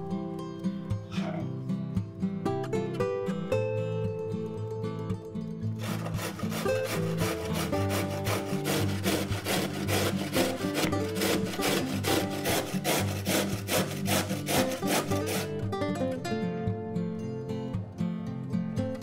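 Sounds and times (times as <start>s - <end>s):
background music: 0.0s - 19.0s
carrot grating on box grater: 5.8s - 15.6s.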